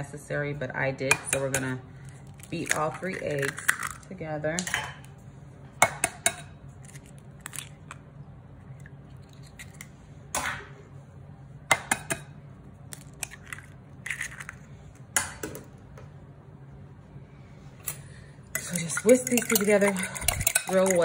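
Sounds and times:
eggshells crunching apart: 0:02.1 - 0:04.1, 0:06.8 - 0:08.0, 0:12.9 - 0:14.9
eggshells tapping on glass bowl: 0:18.6 - 0:21.0.

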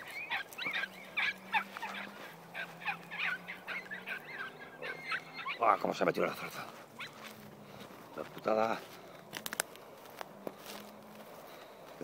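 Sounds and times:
dog yelping: 0:00.0 - 0:07.3.

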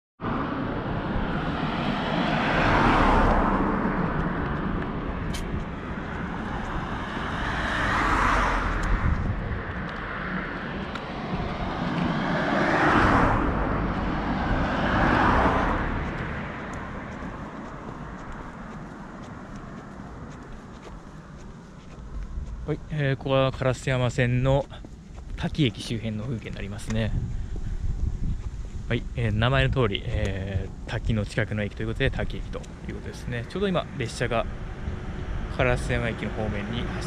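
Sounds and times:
steady low rumble: 0:00.2 - 0:02.4, 0:03.2 - 0:37.0
cars passing: 0:00.2 - 0:37.0.

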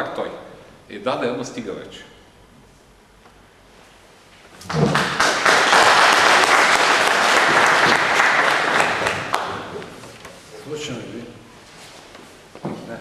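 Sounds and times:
audience applauding: 0:04.6 - 0:10.1.

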